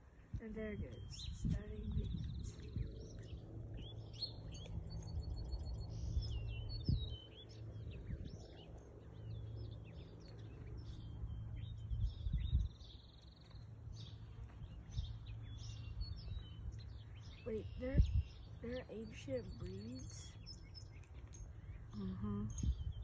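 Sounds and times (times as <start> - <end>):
songbirds chirping: 0.0 - 23.0
low rumble: 0.6 - 20.0
bird trill: 0.6 - 23.0.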